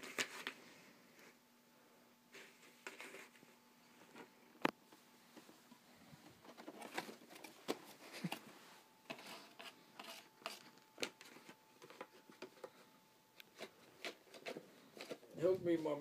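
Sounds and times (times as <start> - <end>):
cat scratching cardboard box: 13.5 - 15.3.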